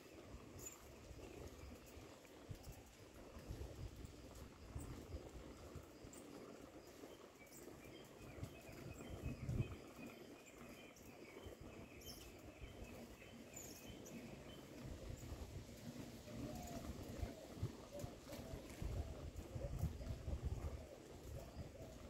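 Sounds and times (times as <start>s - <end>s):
bird chirping: 7.1s - 15.4s.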